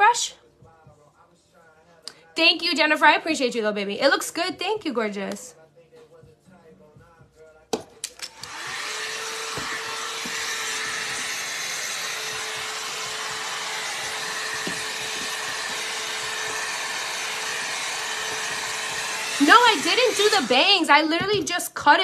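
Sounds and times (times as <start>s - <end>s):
blow-dry brush running: 8.3s - 21.4s.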